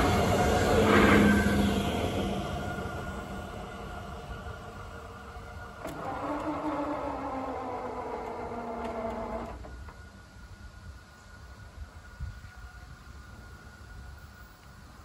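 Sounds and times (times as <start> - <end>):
barrier motor whining: 5.6 - 10.0.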